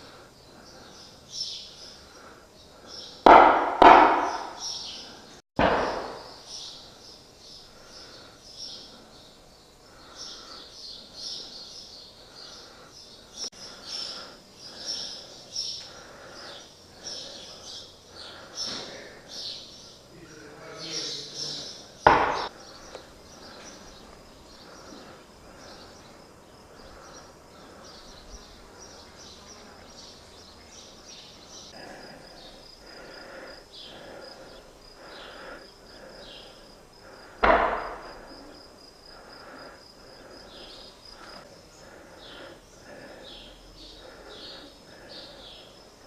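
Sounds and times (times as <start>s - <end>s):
small birds chirping: 0.0s - 46.0s
sharp loud bang: 3.3s - 4.7s, 5.6s - 6.4s, 22.1s - 22.5s, 37.4s - 38.2s
high insect trill: 5.8s - 46.0s.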